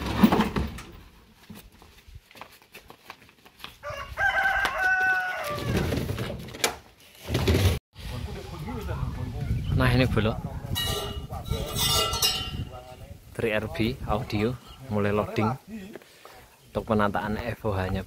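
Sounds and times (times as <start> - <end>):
rooster crowing: 3.8 - 6.0.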